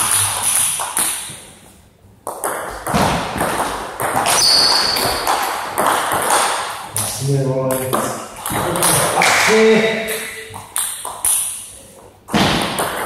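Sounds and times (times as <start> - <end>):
ping pong ball clicking off paddles: 2.2 - 9.5, 10.1 - 13.0
high squeak: 4.3 - 5.2
ball bouncing on table: 7.7 - 9.4, 12.3 - 13.0.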